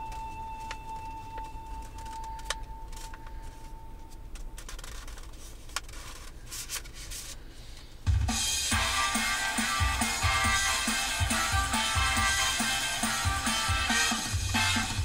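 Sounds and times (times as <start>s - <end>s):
music with a beat: 8.1s - 15.0s.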